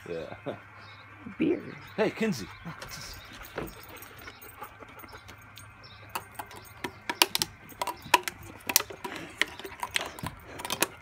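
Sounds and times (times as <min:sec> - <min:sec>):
dog teeth clicking on metal can: 0:06.1 - 0:11.0.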